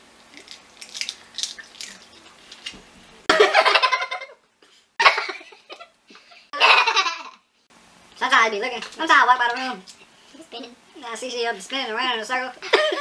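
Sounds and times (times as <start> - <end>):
crab shells cracking: 0.3 - 2.8
woman laughing loudly: 3.3 - 4.4, 5.0 - 7.3, 12.6 - 13.0.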